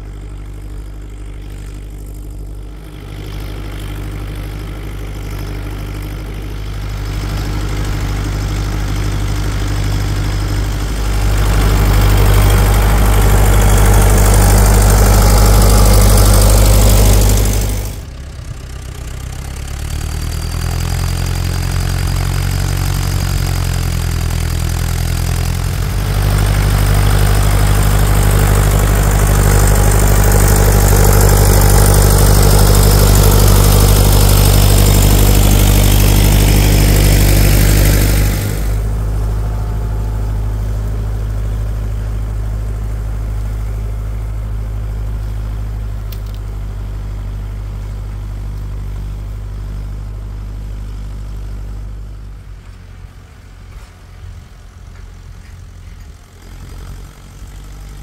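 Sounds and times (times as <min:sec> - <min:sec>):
tractor diesel engine under load: 0:00.0 - 0:58.0.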